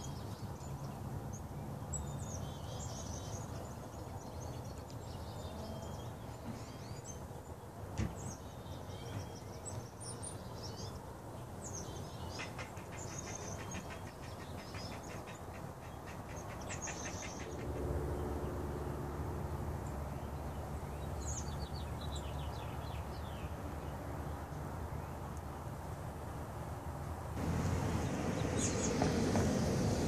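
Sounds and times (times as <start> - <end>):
birds chirping: 0.0 - 18.6, 27.4 - 30.0.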